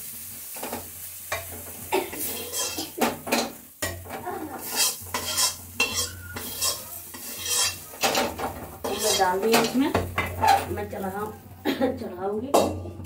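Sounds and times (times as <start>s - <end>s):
metal ladle scraping metal pot: 2.3s - 10.9s.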